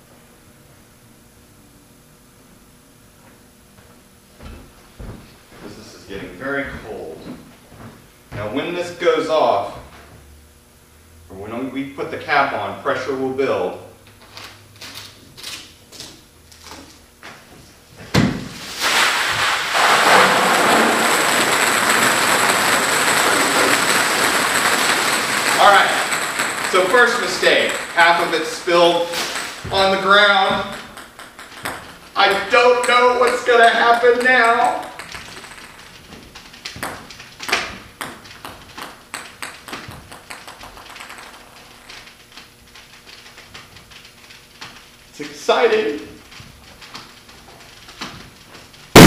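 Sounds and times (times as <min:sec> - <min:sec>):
ping pong balls pouring and bouncing: 0:18.5 - 0:49.0.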